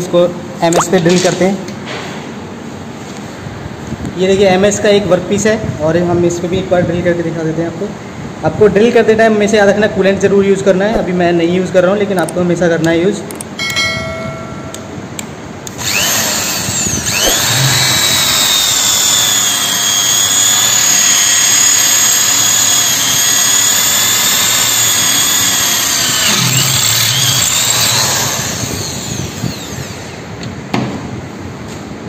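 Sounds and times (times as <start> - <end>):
electric drill whining through steel: 15.7 - 30.4.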